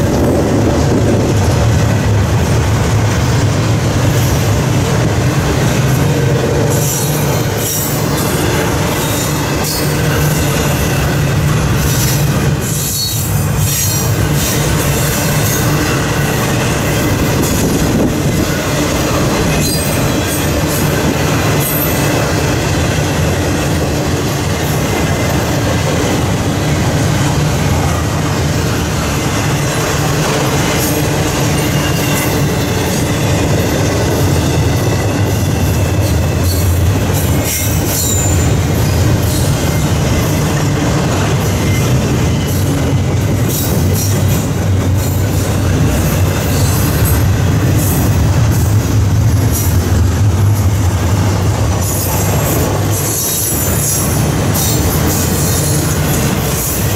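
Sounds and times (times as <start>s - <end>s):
clicks and clacks of rail cars: 0.0s - 56.9s
train wheels rumbling on rail: 0.0s - 56.9s
faint high wheel squeal: 31.5s - 33.3s, 37.5s - 38.6s.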